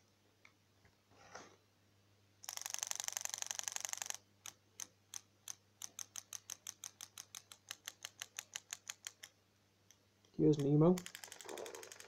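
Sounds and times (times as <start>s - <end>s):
toy fish tail mechanism clicking: 2.4s - 9.4s, 10.6s - 12.0s.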